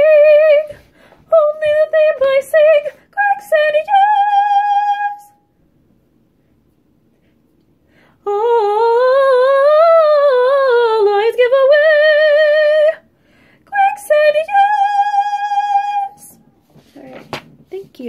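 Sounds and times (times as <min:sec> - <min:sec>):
woman singing unaccompanied: 0:00.0 - 0:05.4, 0:08.2 - 0:13.0, 0:13.6 - 0:16.4.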